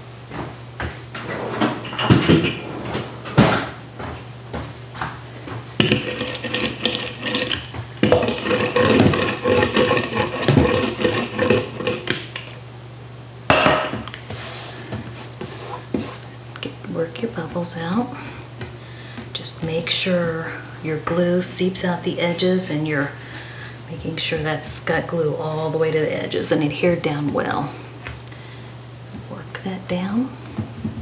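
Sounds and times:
knocks and clatters: 0:00.8 - 0:04.7, 0:05.5 - 0:12.2.

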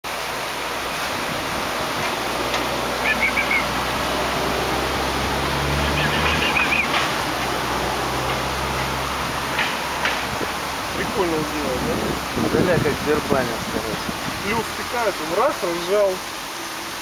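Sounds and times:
outdoor background hiss: 0:00.0 - 0:17.0
quick bird chirps: 0:03.0 - 0:03.7, 0:05.8 - 0:07.0.

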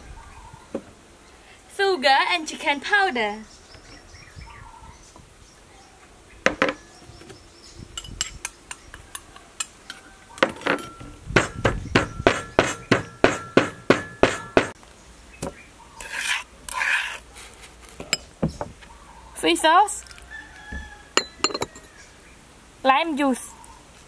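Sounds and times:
pestle pounding in mortar: 0:11.3 - 0:14.8.

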